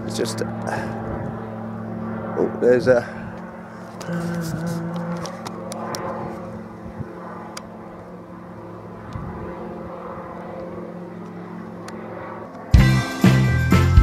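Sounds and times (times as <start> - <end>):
engine droning: 0.0 - 14.0
loud music with bells: 12.8 - 14.0.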